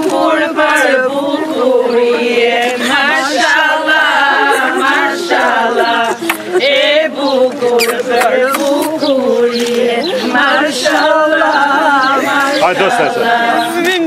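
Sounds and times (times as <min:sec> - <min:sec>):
voices singing unaccompanied: 0:00.0 - 0:14.0.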